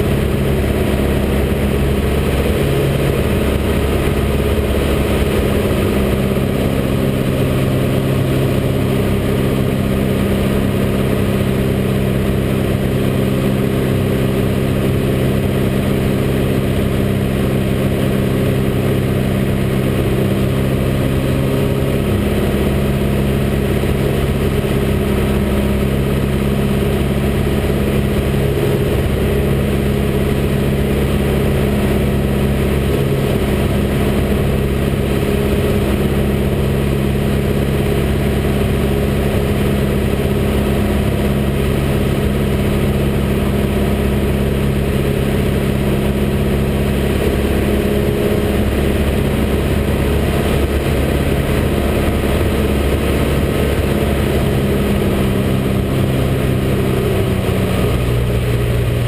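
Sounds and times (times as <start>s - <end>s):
aircraft engine and propeller drone: 0.0s - 59.0s.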